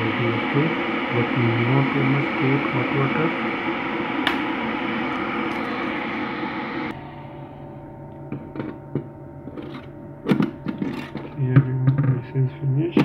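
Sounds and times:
electric kettle heating water: 0:00.0 - 0:12.1
steady hum: 0:00.0 - 0:13.0
kettle switch click: 0:04.2 - 0:04.5.

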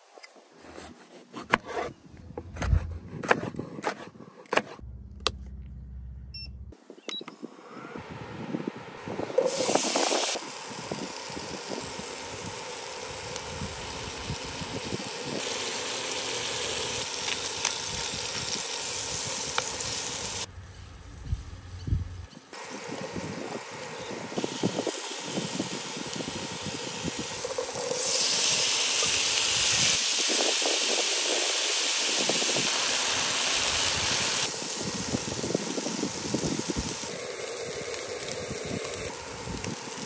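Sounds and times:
knife chopping on wooden board: 0:02.5 - 0:04.8
potatoes sizzling in oil: 0:09.4 - 0:20.5, 0:22.5 - 0:40.0.

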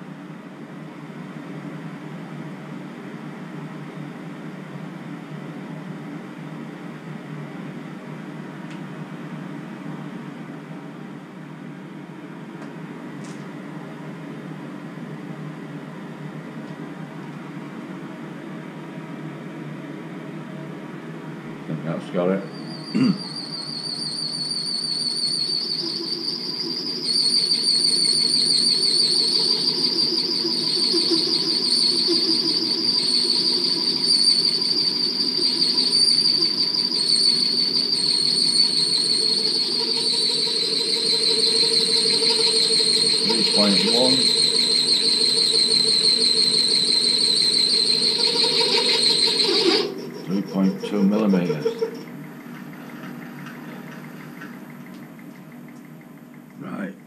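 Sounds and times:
milling machine whining: 0:22.4 - 0:54.8.

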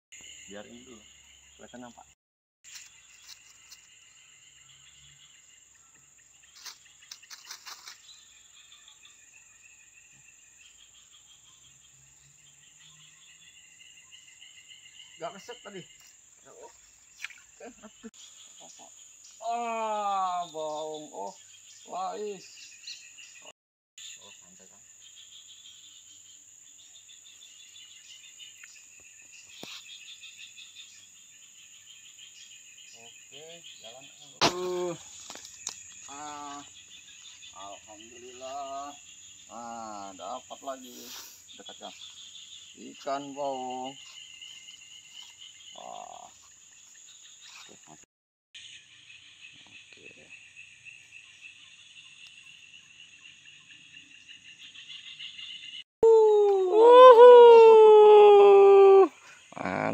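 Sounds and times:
crickets and insects chirping: 0:00.1 - 0:59.9
clicks and rustles: 0:06.6 - 0:08.0.

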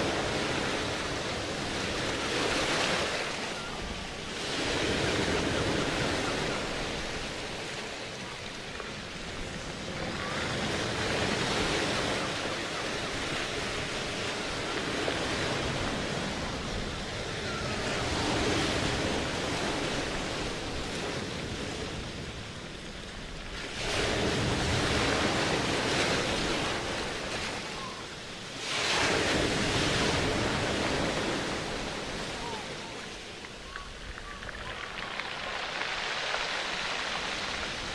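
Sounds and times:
rushing surging noise: 0:26.6 - 0:37.9.

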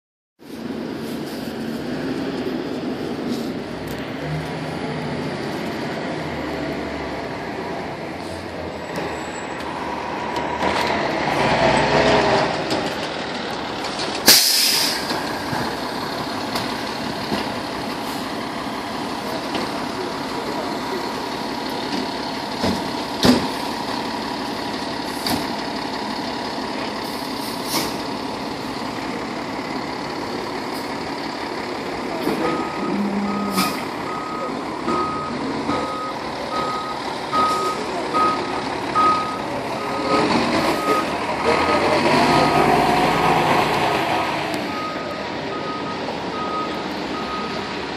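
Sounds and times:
fire engine diesel engine running: 0:00.4 - 0:47.9
air brake hiss: 0:14.3 - 0:15.1
reversing alarm beeping: 0:32.4 - 0:41.2, 0:44.6 - 0:47.7.

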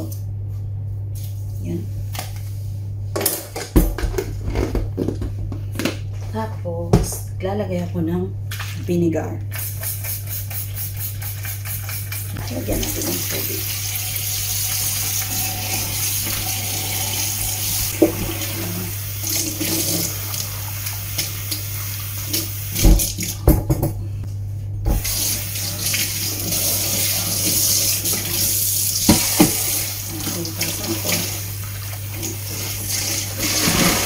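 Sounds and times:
hands washing shrimp in water: 0:25.0 - 0:34.0.

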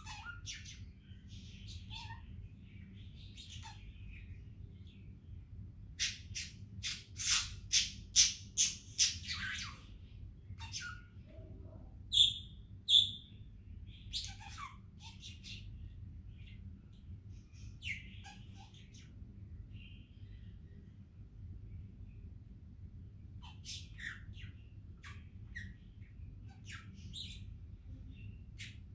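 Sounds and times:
budgerigar chirping and whistling: 0:00.0 - 0:00.9, 0:01.5 - 0:02.3, 0:03.2 - 0:03.9, 0:06.0 - 0:09.9, 0:10.6 - 0:11.1, 0:12.1 - 0:13.3, 0:14.1 - 0:15.7, 0:17.6 - 0:19.1, 0:23.4 - 0:25.8, 0:26.4 - 0:27.5, 0:28.6 - 0:28.9.

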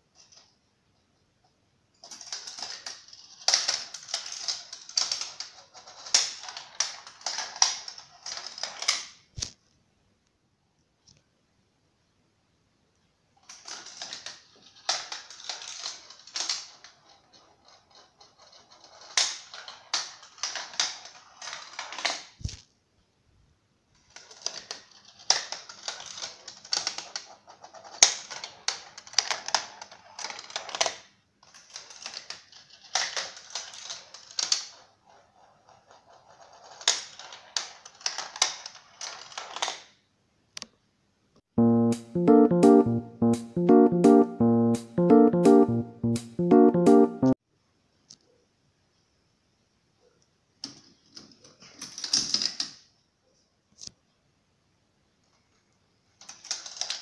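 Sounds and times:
marbles rattling through plastic run: 0:25.2 - 0:34.7.

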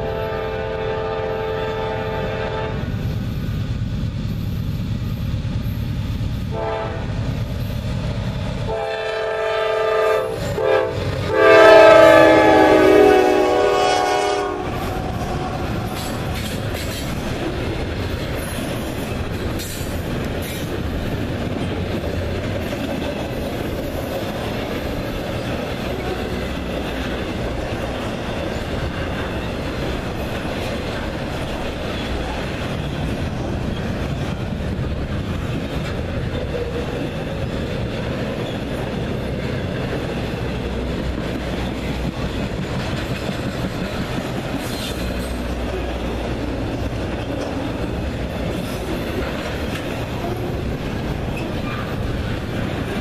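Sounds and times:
locomotive horn: 0:00.0 - 0:02.9, 0:06.5 - 0:07.1, 0:08.7 - 0:16.3
freight train wheels rumbling on rail: 0:00.0 - 0:53.0.

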